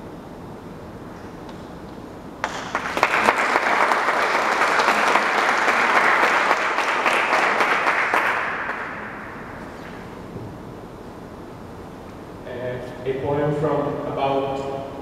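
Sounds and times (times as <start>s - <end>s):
audience applauding: 2.4s - 9.2s.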